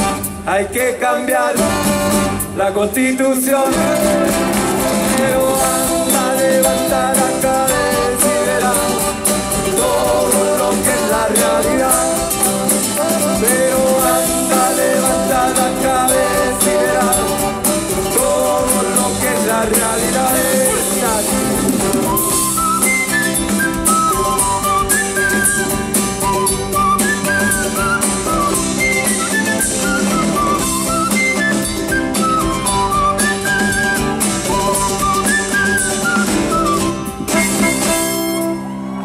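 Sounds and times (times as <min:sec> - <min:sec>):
saxophone: 0:00.0 - 0:00.6, 0:01.6 - 0:02.6, 0:03.7 - 0:39.0
acoustic guitar: 0:00.0 - 0:39.0
trumpets: 0:01.6 - 0:02.5, 0:37.3 - 0:39.0.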